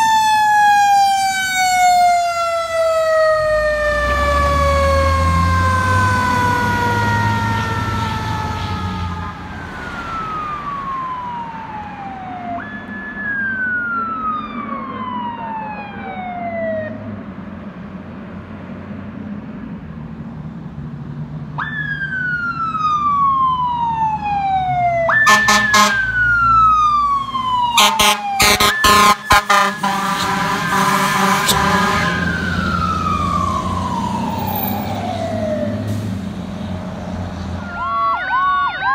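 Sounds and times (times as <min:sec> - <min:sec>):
fire engine siren: 0:00.0 - 0:17.4, 0:21.4 - 0:38.9
truck engine rumble: 0:00.0 - 0:38.9
air horn blasts: 0:25.2 - 0:26.1, 0:27.8 - 0:32.4.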